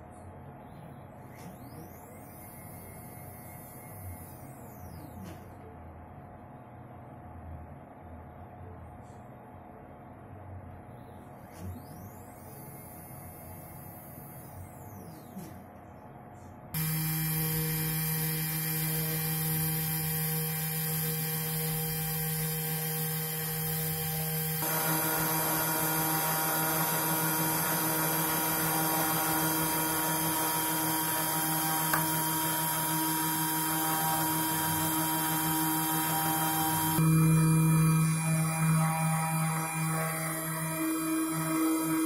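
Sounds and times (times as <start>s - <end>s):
cnc router spindle whine: 0.7s - 5.3s, 16.8s - 42.0s
engraving bit milling circuit board: 16.8s - 42.0s.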